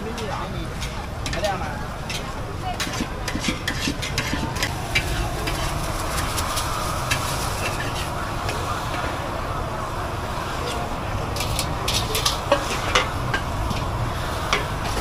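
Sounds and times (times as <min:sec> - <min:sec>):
spatulas clinking on steel wok: 0:00.1 - 0:05.7, 0:11.4 - 0:15.0
vegetables sizzling in wok: 0:00.1 - 0:15.0.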